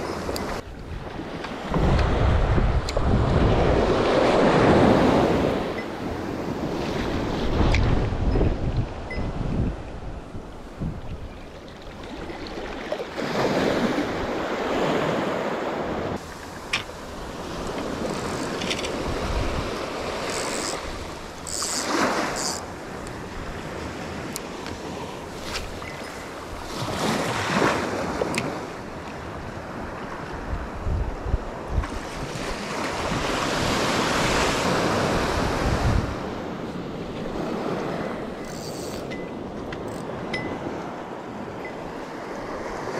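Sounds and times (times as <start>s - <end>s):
small waves washing on sand: 12.0s - 42.9s.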